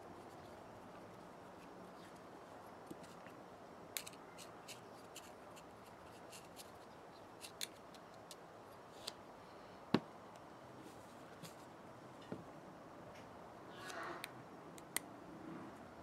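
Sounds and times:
screwdriver clicking and scraping metal: 4.0s - 6.8s.

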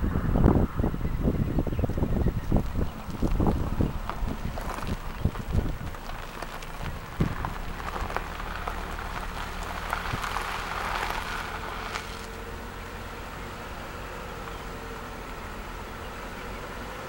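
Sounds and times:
wind noise on microphone: 0.0s - 12.3s
clicks and crackles: 2.6s - 12.4s.

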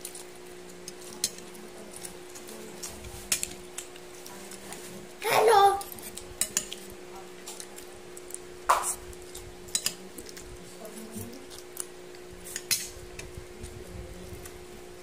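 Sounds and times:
steady low hum: 0.0s - 15.0s
cutlery clinking on a plate: 9.7s - 10.0s.

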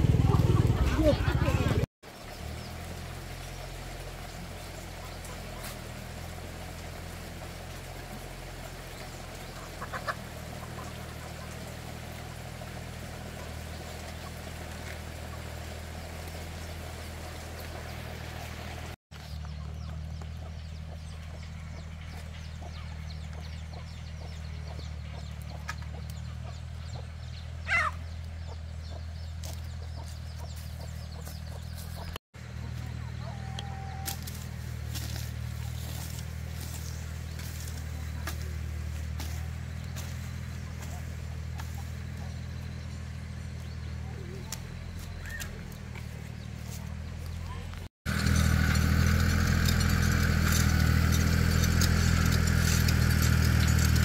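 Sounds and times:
low hum: 0.0s - 9.6s
chickens calling: 0.0s - 54.0s.

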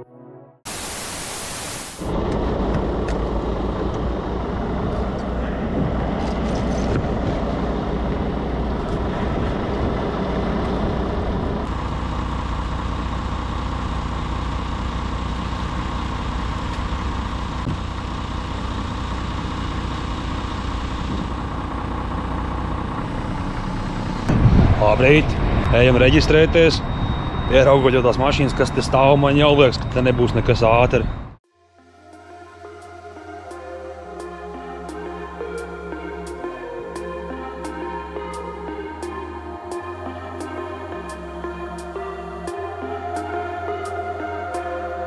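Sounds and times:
loud air hiss: 0.7s - 2.1s
diesel engine idling: 2.1s - 31.4s.

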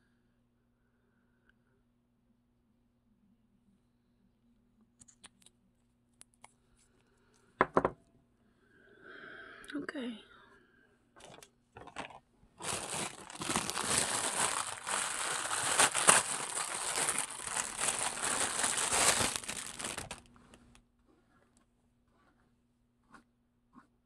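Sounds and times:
crinkling rustle: 11.2s - 21.4s.

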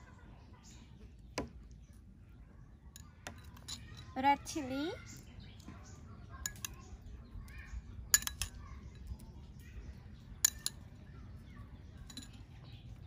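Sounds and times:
utensils clinking against metal pan: 6.4s - 6.8s, 8.1s - 8.6s, 10.4s - 10.8s.

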